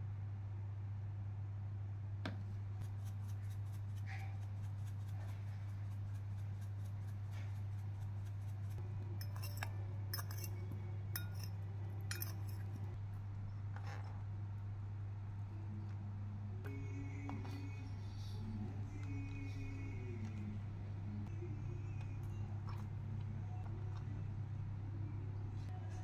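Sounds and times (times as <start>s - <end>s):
low hum: 0.0s - 26.0s
utensil scraping glass bowl: 9.2s - 12.9s.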